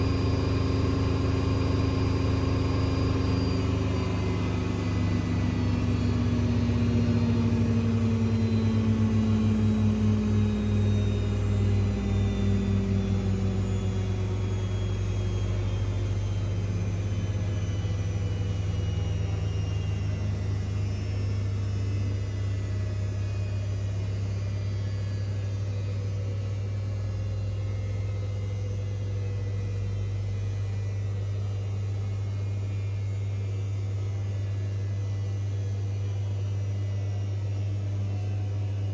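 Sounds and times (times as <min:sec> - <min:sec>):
low hum: 0:00.0 - 0:38.9
washing machine motor whine: 0:00.0 - 0:38.9.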